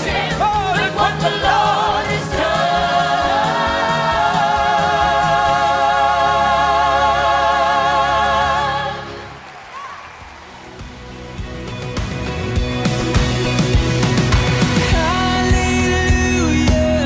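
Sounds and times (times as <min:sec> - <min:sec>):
group singing gospel song: 0:00.0 - 0:09.4.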